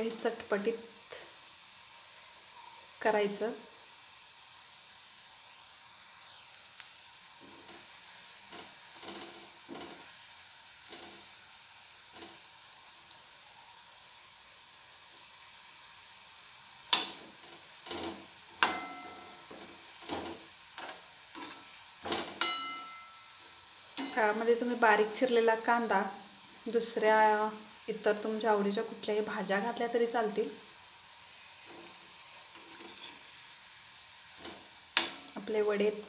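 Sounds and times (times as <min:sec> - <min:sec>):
food deep-frying in oil: 0:00.0 - 0:36.0
metal spoon clinking against pan: 0:18.6 - 0:19.5, 0:22.4 - 0:23.3, 0:24.0 - 0:24.2.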